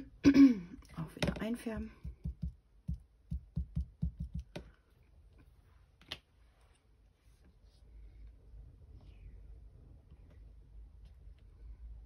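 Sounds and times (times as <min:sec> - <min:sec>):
ink pad tapping on rubber stamp: 0:02.0 - 0:04.7.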